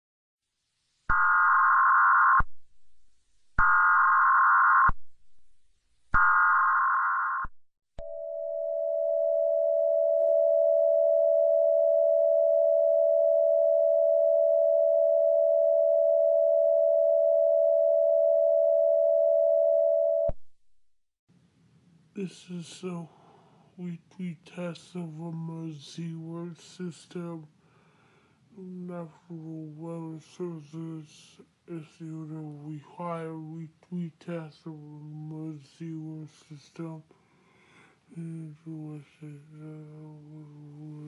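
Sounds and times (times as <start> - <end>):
long steady attention tone: 8.0 - 20.4.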